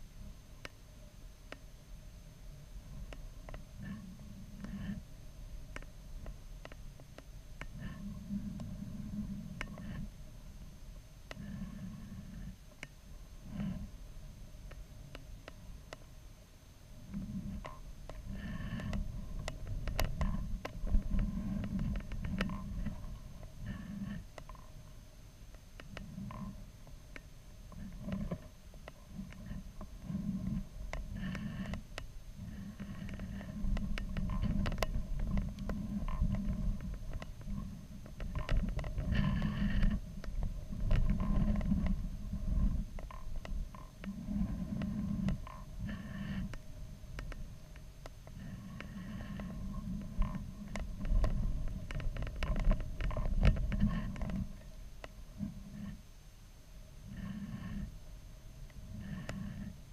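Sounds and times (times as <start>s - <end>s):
muffled low rumble: 0.0s - 59.9s
sharp clicks and creaks: 2.9s - 10.6s, 11.3s - 14.0s, 14.6s - 16.2s, 17.0s - 56.0s, 58.6s - 59.9s.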